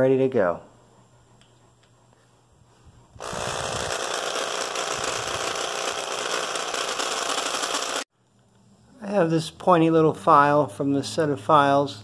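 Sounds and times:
electric drill running: 3.2 - 8.1.

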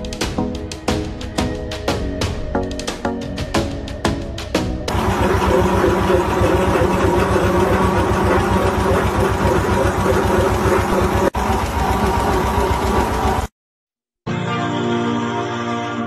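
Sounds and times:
farm machinery engine drone: 4.9 - 13.5.

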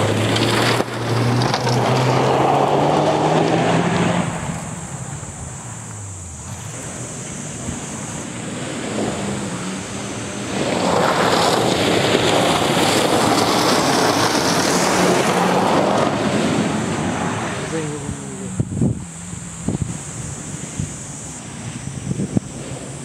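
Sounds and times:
rally car engine running hard: 0.0 - 23.0
hiss of gravel sprayed by tyres: 18.7 - 23.0.

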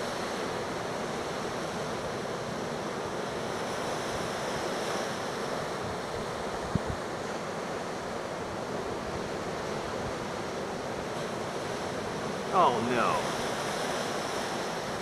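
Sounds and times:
ocean surf breaking: 12.5 - 13.7.

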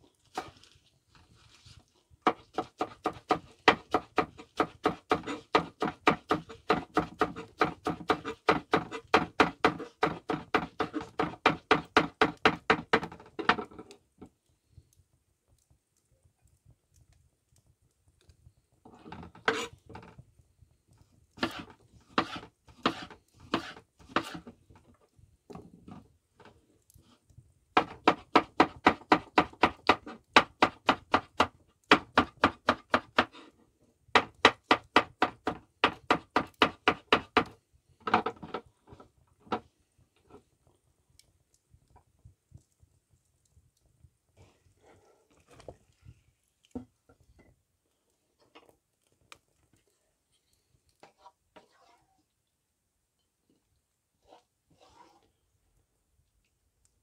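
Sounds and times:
knife chopping on wooden board: 2.3 - 13.6, 21.4 - 24.4, 27.8 - 33.3, 34.2 - 38.6.

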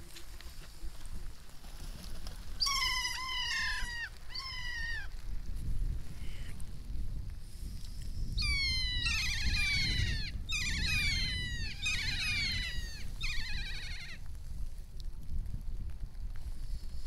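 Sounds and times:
wind rumble on microphone: 0.0 - 17.0
parrot calling: 8.4 - 14.2.

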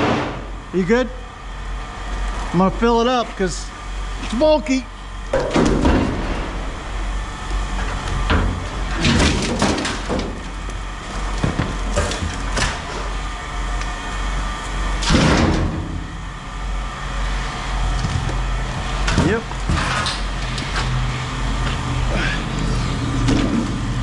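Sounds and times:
steady low rumble: 0.0 - 24.0
metal furniture clanking in scrap bin: 8.3 - 10.4.

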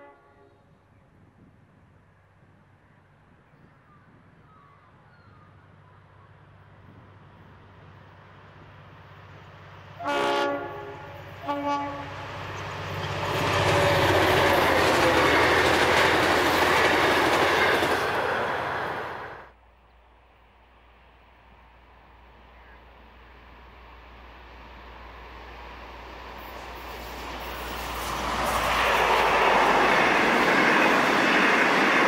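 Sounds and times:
train horn blasts: 0.0 - 0.8, 10.0 - 12.4
train passing close by: 0.0 - 3.1, 5.7 - 19.6, 20.5 - 32.0
diesel locomotive engine: 5.4 - 32.0.

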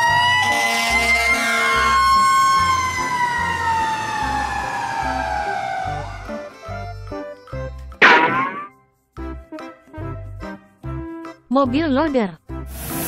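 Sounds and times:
fire truck siren wailing: 0.0 - 6.8.

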